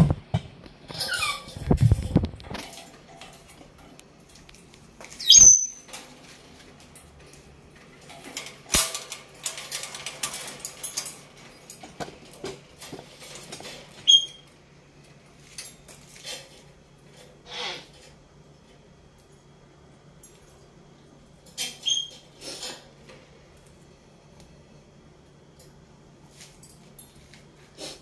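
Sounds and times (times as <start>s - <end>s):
parrot chirps: 5.2s - 5.8s, 14.0s - 14.4s.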